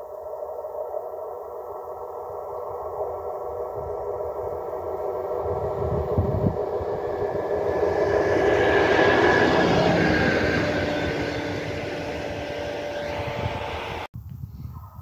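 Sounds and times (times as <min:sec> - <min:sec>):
diesel locomotive engine drone: 0:00.0 - 0:14.1
high whine: 0:00.0 - 0:14.1
rolling train wheels: 0:04.4 - 0:14.1.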